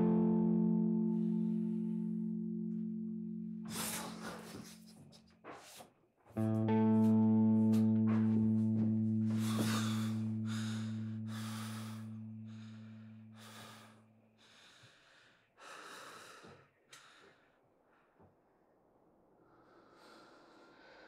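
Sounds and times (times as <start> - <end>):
low held guitar note: 0.0 - 4.1, 6.4 - 13.4
man breathing heavily: 3.7 - 5.0, 9.1 - 17.6.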